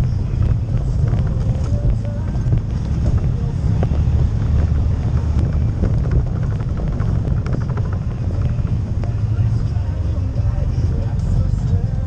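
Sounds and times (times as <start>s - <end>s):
atv engine droning: 0.0s - 12.0s
clicks and rattles over stones: 0.4s - 9.2s.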